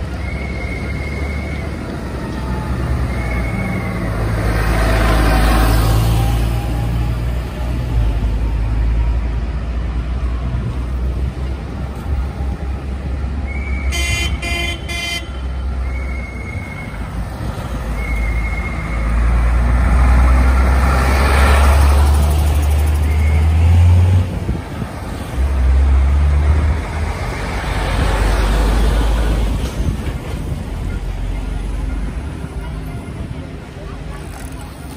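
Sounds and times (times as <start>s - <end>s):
heavy diesel engines driving past: 0.0s - 34.9s
vehicle horn toots: 13.9s - 15.4s.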